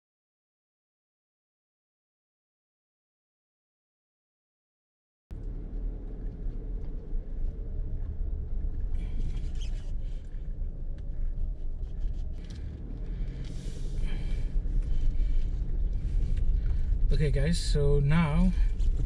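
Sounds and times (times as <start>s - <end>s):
light ticks and rattles: 5.3s - 17.9s
road rumble inside vehicle: 5.3s - 19.0s.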